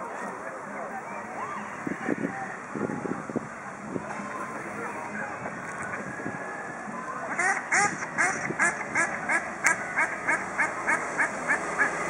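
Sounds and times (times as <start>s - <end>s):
duck quacking: 7.3s - 12.0s.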